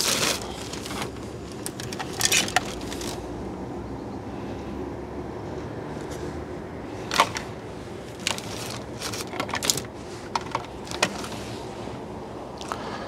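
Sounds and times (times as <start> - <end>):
plastic transformer and cables rattling: 0.0 - 3.3, 7.0 - 11.5
low steady background noise: 0.0 - 13.0.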